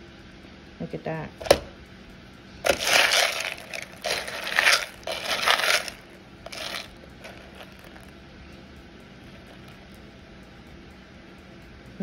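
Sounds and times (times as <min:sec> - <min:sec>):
dry beans rattling and scraping: 0:02.6 - 0:08.1, 0:09.3 - 0:09.8.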